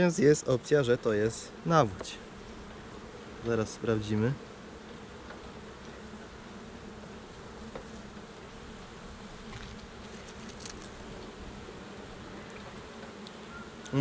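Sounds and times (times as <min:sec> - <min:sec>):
honeybees buzzing: 0:00.0 - 0:14.0
faint ticks: 0:12.5 - 0:14.0.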